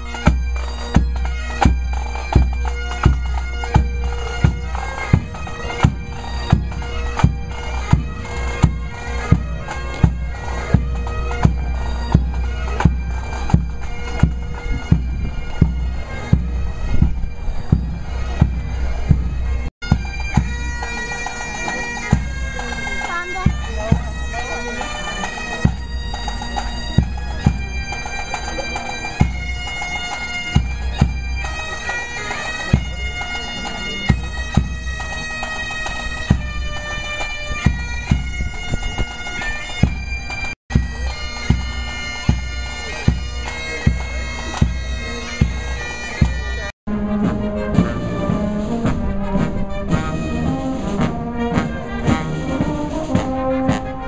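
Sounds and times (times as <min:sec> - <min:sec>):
bagpipes playing march: 0:00.0 - 0:54.0
drum beat: 0:22.1 - 0:29.5, 0:45.4 - 0:54.0.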